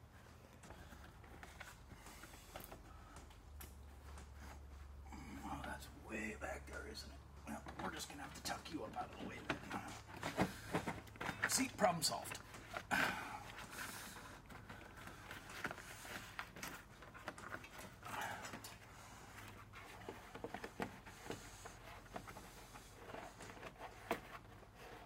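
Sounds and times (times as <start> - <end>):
plastic scraping and rustling: 7.5 - 25.0.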